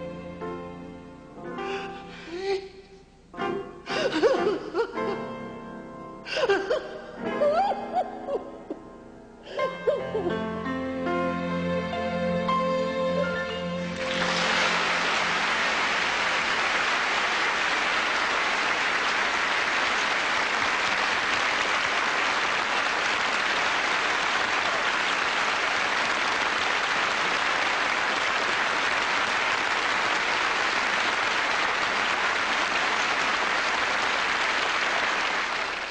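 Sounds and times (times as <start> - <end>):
music: 0.0 - 16.7
audience applauding: 13.9 - 35.9.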